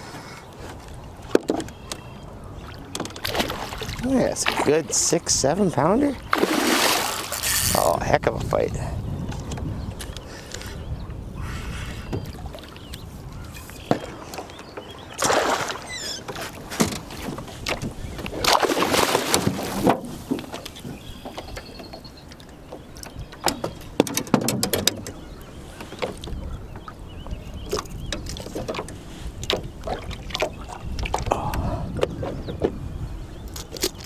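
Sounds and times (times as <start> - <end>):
knocks and clicks against boat: 0.0 - 4.8, 6.3 - 11.2, 11.8 - 34.0
fish splashing in water: 6.3 - 7.5, 15.2 - 16.0, 18.4 - 19.8.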